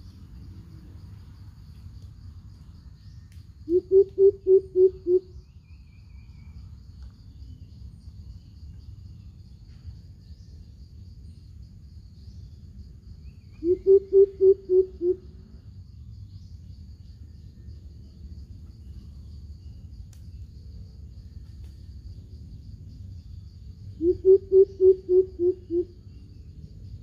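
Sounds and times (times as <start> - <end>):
faint high insect trill: 0.0 - 27.0
bird deep hoots: 3.7 - 5.3, 13.6 - 15.3, 24.0 - 26.0.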